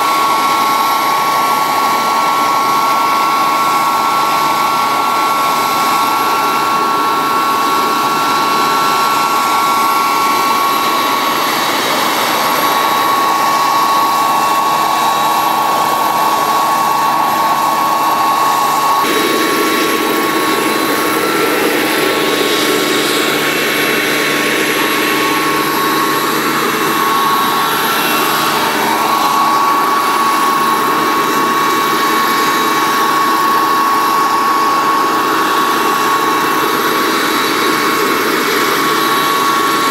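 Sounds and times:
model helicopter turbine whine: 0.0 - 39.9.

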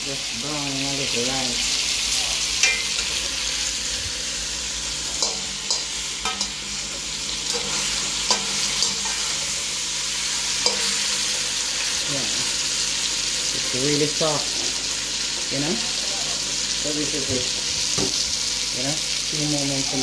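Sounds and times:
meat sizzling in hot oil: 0.0 - 20.0
wire skimmer clinking on pot: 2.6 - 3.2.

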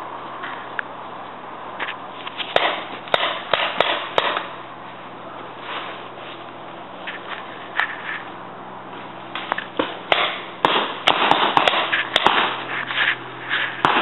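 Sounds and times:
rustling brush: 4.8 - 9.3, 11.8 - 13.9.

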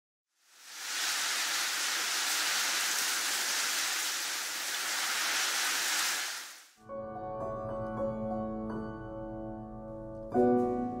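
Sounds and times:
steady high hiss: 0.4 - 6.8.

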